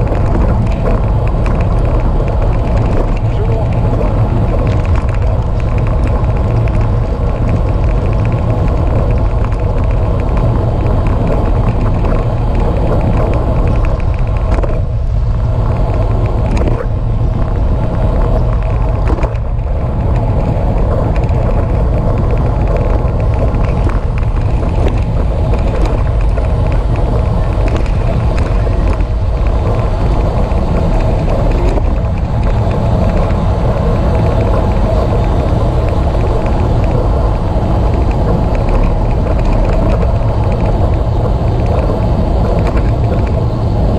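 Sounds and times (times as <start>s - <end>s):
wind rush on microphone: 0.0s - 43.9s.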